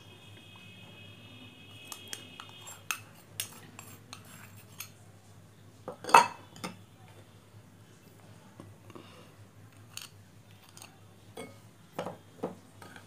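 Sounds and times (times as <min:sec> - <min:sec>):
clatter of dishes: 0:05.9 - 0:06.8.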